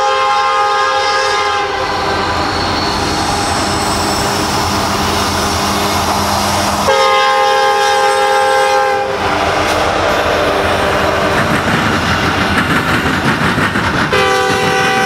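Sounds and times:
train air horn: 0:00.0 - 0:02.2, 0:05.6 - 0:11.4, 0:14.1 - 0:15.0
diesel locomotive engines: 0:00.0 - 0:15.0
train wheels rumbling on rail: 0:00.0 - 0:15.0.

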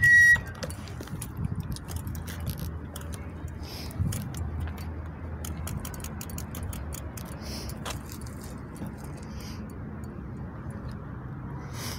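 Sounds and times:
low rumble of bicycle on paving: 0:00.0 - 0:06.5, 0:07.2 - 0:09.6
bicycle ticking and rattling: 0:00.0 - 0:10.2.

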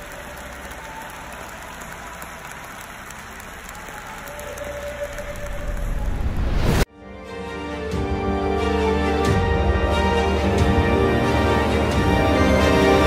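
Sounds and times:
stadium crowd applauding: 0:00.0 - 0:06.8.

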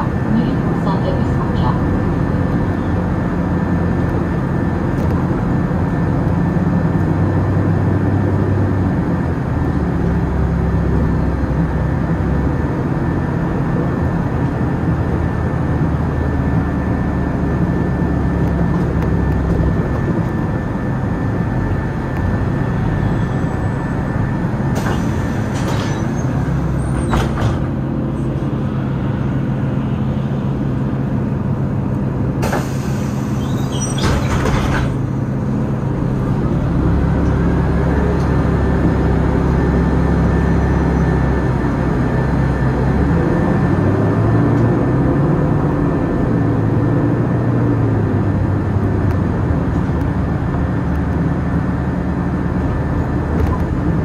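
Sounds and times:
bus engine running: 0:00.0 - 0:54.0
brakes squealing: 0:22.3 - 0:28.8, 0:32.4 - 0:41.3.

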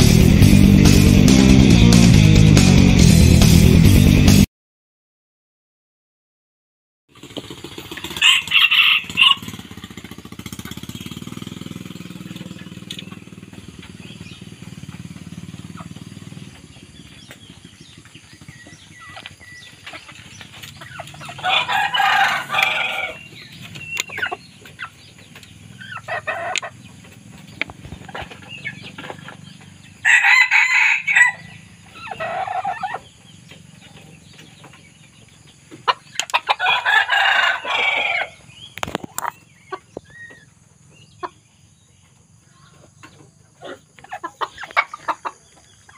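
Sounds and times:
rooster crowing and clucking: 0:08.1 - 0:09.8, 0:18.7 - 0:27.2, 0:27.8 - 0:34.9, 0:35.5 - 0:40.3.

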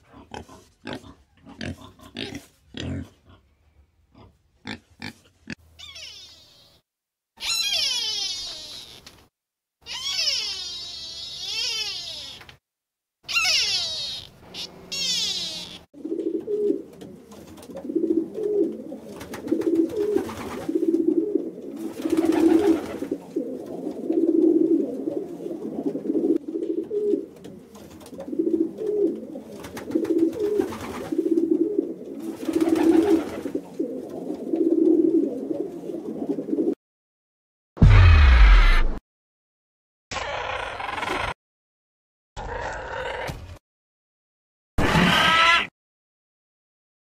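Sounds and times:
pigeon cooing: 0:13.3 - 0:36.8.

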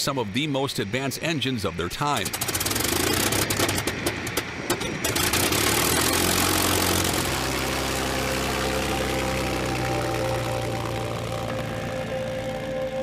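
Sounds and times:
piston engine starting up: 0:02.2 - 0:08.8.

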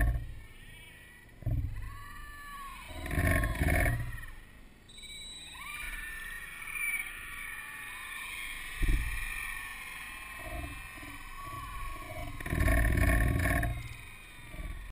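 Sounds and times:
low rumble on microphone: 0:00.0 - 0:00.5, 0:01.3 - 0:02.1, 0:02.9 - 0:04.6, 0:08.7 - 0:09.7, 0:10.3 - 0:14.9
crowd cheering and shouting: 0:00.3 - 0:04.6, 0:05.3 - 0:13.0, 0:13.6 - 0:14.9
low thump on microphone: 0:01.4 - 0:01.8, 0:08.8 - 0:09.3.

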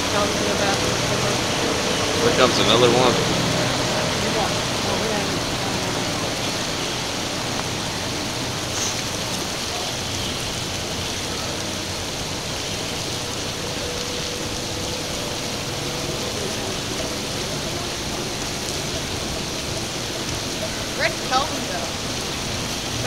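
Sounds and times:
rain hissing: 0:00.0 - 0:23.0.

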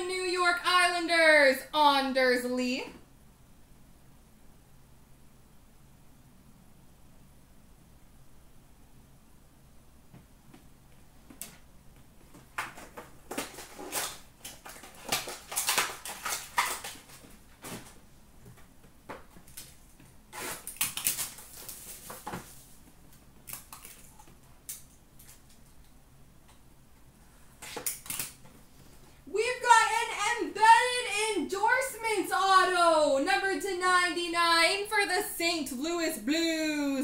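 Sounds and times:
cards and packaging rustling: 0:12.3 - 0:18.0, 0:19.1 - 0:25.7.

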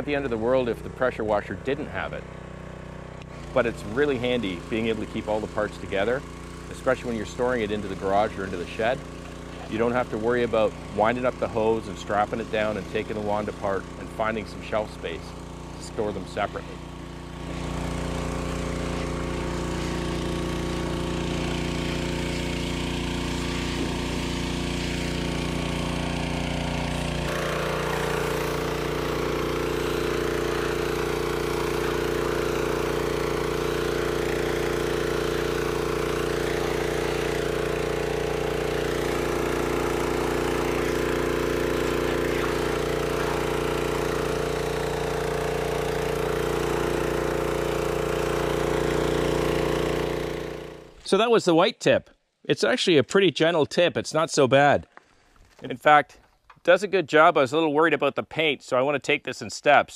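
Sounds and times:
pressure washer engine running: 0:00.0 - 0:51.2
water spray hissing: 0:03.4 - 0:50.8.

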